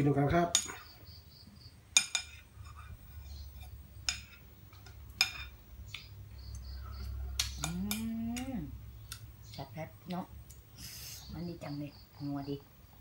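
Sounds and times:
metal spoon clinking on bowl: 0.5s - 0.8s, 2.0s - 2.9s, 3.5s - 5.6s.

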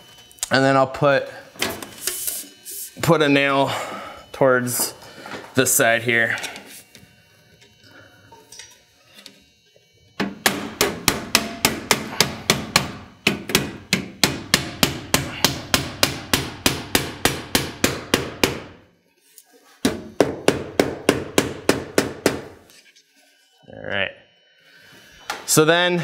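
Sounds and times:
hammer driving nails: 10.2s - 18.8s, 19.8s - 22.6s.

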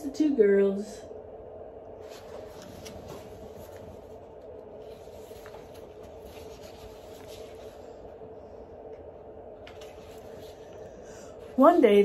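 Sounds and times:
steady low hum: 0.0s - 12.0s
book pages rustling: 2.0s - 8.2s, 9.6s - 11.0s.

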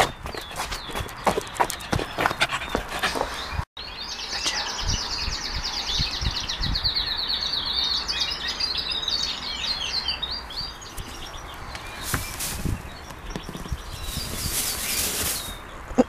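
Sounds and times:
birds chirping and twittering: 0.0s - 16.0s.

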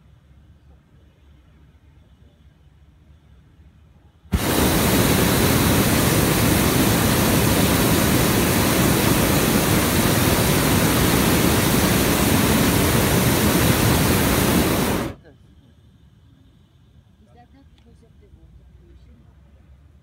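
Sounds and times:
propane burner roaring: 4.3s - 15.2s.

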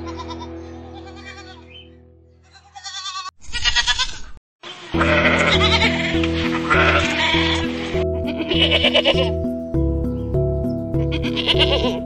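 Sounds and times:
goat bleating: 0.0s - 1.8s, 2.4s - 9.3s, 11.0s - 12.0s
background music: 0.0s - 2.2s, 5.0s - 12.0s.

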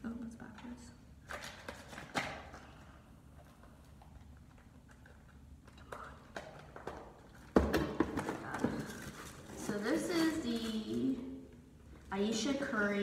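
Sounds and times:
packaging rustling: 8.1s - 11.2s.

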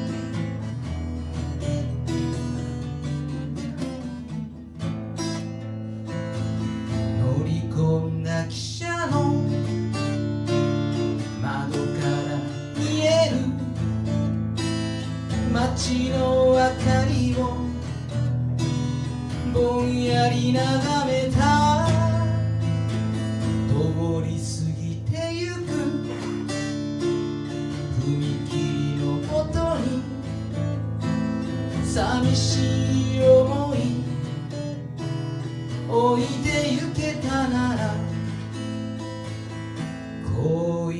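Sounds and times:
acoustic guitar strumming: 0.0s - 40.9s.

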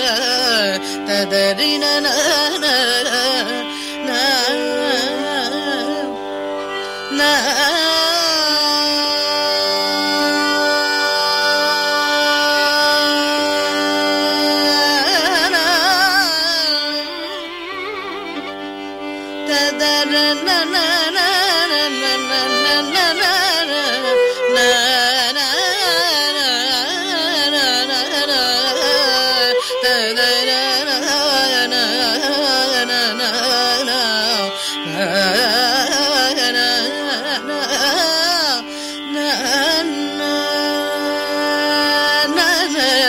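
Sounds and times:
tambura drone: 0.0s - 42.8s
woman singing classical music: 0.0s - 43.0s.

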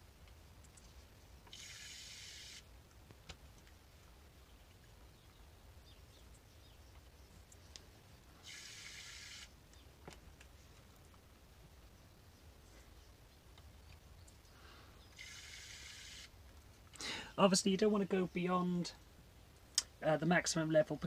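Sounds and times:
syringe squirting water: 1.5s - 2.6s, 8.4s - 9.5s, 15.2s - 16.3s
faint clicks: 6.3s - 7.9s.

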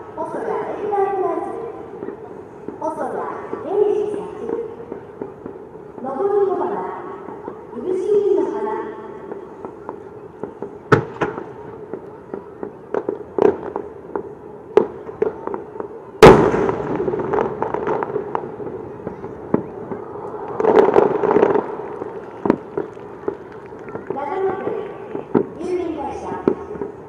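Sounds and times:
firework shells booming: 9.3s - 25.6s.

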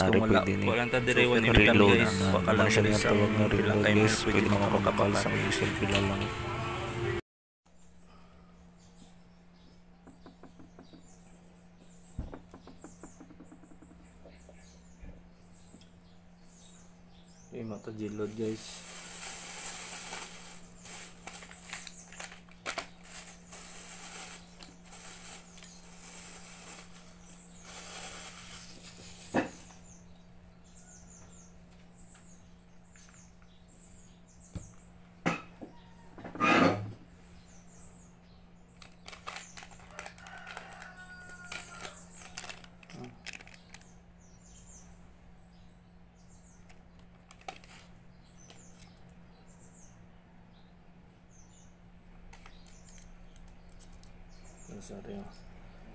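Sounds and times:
low electrical hum: 0.0s - 55.9s
small birds chirping: 7.7s - 36.2s, 37.0s - 55.9s
plastic bag crinkling: 18.3s - 29.7s, 38.8s - 43.9s.

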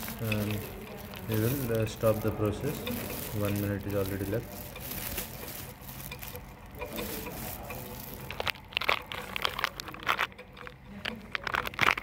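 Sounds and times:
sharp clicks and crackles: 0.0s - 12.0s
stirrer hotplate humming: 0.0s - 12.0s.

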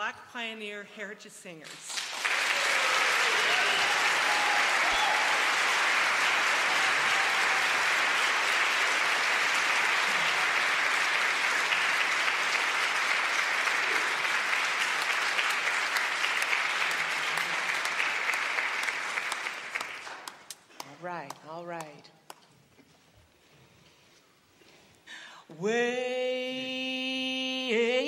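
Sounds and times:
audience applauding: 1.9s - 20.9s.

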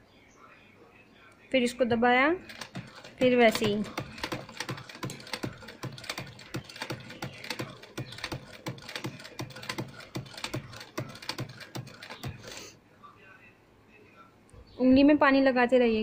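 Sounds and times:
sewing machine stitching: 2.5s - 12.6s.

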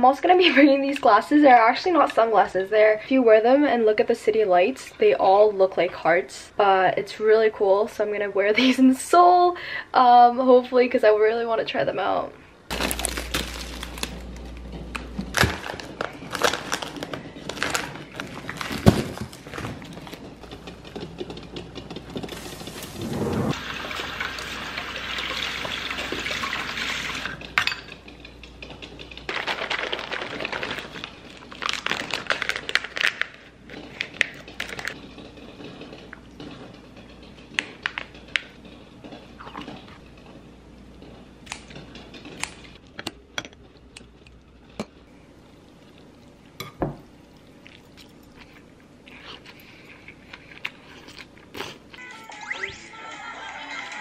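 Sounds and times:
liquid pouring and splashing: 22.4s - 27.3s.

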